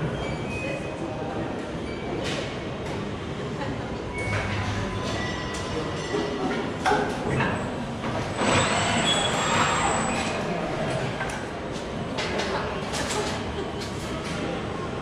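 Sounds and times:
machinery running: 8.2s - 10.8s.

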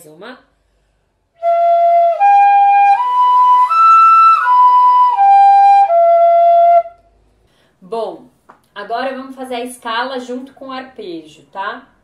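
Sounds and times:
fife playing arpeggio: 1.4s - 7.0s.

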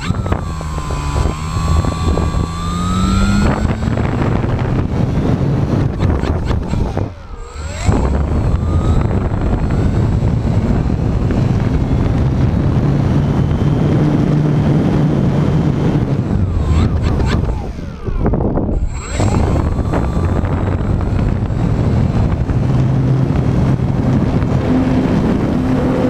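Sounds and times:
wind rushing: 0.0s - 12.7s, 16.0s - 23.0s
model airplane motor and propeller: 0.0s - 26.0s.

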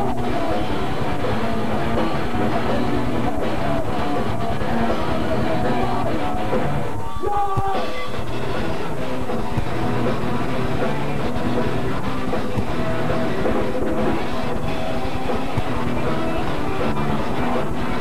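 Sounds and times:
person singing: 0.0s - 9.0s
drum kit: 0.0s - 18.0s
electric guitar: 0.0s - 18.0s.

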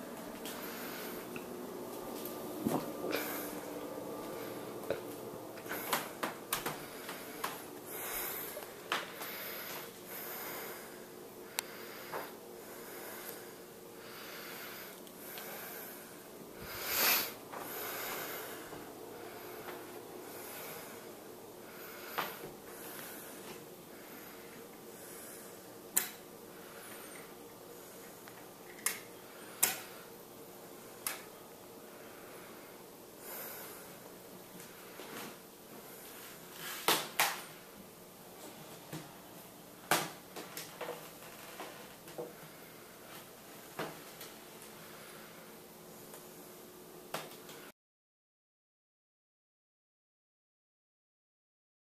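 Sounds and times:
faint steady hum: 0.0s - 47.7s
person breathing heavily: 0.3s - 1.6s, 2.7s - 25.8s, 26.4s - 28.3s, 31.8s - 36.9s, 42.2s - 43.3s, 44.7s - 45.6s.

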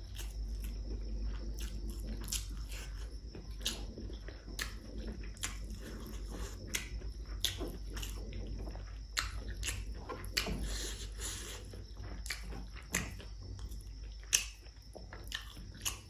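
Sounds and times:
low steady hum: 0.0s - 16.0s
person chewing food: 0.0s - 16.0s
wet mouth clicks and smacks: 9.2s - 10.5s, 12.2s - 14.7s.

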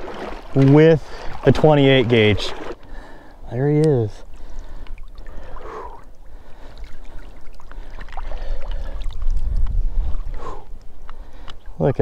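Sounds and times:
water splashing and dripping: 0.0s - 3.0s, 3.8s - 12.0s
wind rumbling on microphone: 8.2s - 12.0s.

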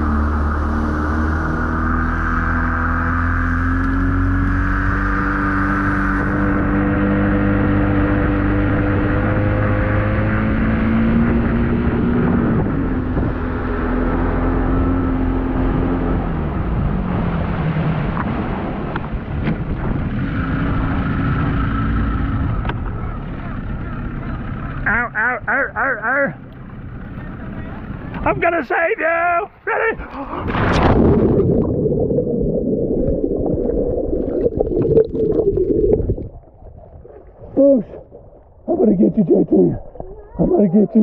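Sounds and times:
outboard motor running: 14.7s - 28.4s
wind and water rushing: 30.0s - 41.0s.

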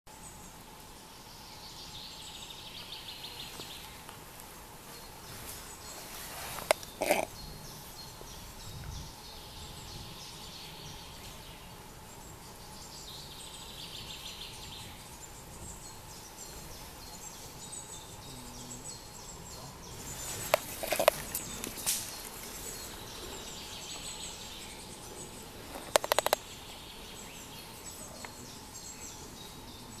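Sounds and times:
distant songbirds singing: 0.1s - 30.0s
steady hiss: 0.1s - 30.0s
sharp clicks: 25.7s - 26.4s.

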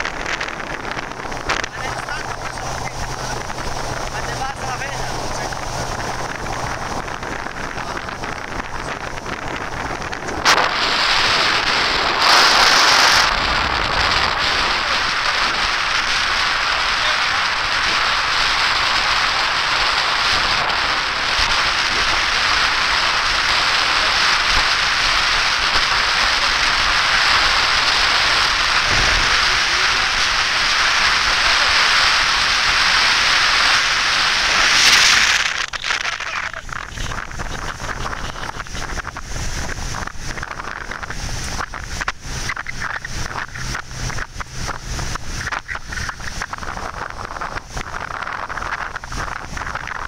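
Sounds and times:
motorboat wind and water rushing: 0.0s - 50.0s.

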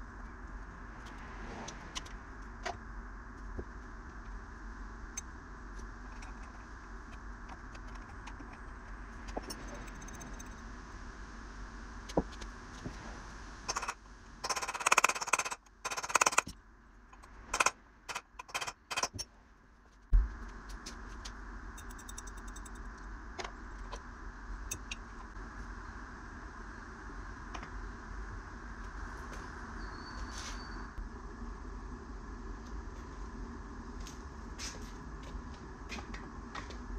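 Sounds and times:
sharp clicks: 13.7s - 16.6s, 17.2s - 19.2s.

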